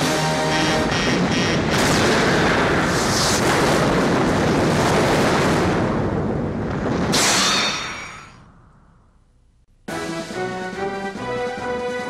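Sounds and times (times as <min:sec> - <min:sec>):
game machine music: 0:00.0 - 0:01.7
explosion roar: 0:00.6 - 0:07.2.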